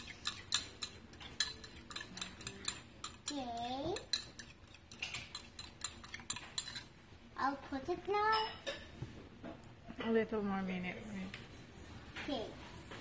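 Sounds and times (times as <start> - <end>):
fork clinking against ceramic bowl: 0.0 - 6.9.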